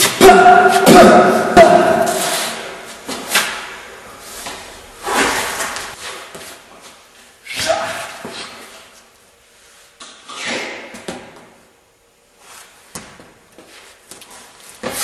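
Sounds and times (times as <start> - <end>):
sharp hits echoing: 0.0 - 2.8.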